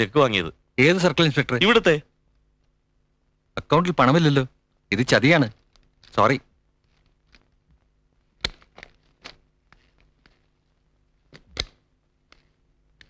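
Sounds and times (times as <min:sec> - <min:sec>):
faint steady hum: 0:00.0 - 0:13.0
irregular clicks and knocks: 0:06.8 - 0:10.6.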